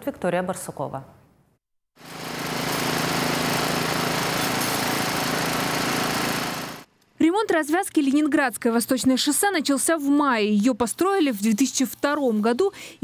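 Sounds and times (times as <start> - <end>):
leaf blower engine: 2.0 - 6.9.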